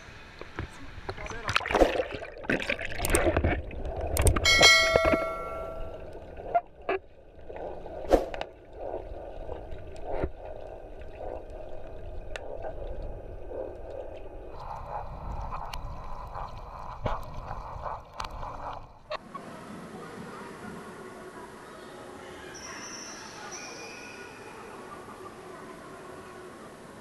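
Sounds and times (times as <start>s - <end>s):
underwater bubbling and gurgling: 1.2s - 19.2s
sharp knocks underwater: 1.5s - 6.0s.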